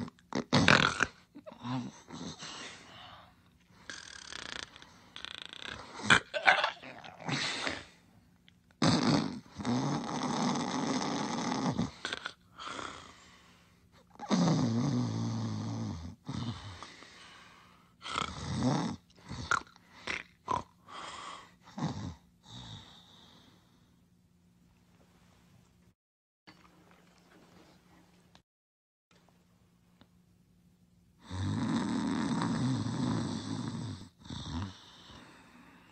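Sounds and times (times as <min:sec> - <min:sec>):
cartoon snoring: 0:00.0 - 0:02.9, 0:03.8 - 0:08.0, 0:08.8 - 0:13.2, 0:14.1 - 0:16.9, 0:18.0 - 0:21.1, 0:21.7 - 0:23.3, 0:31.2 - 0:35.7.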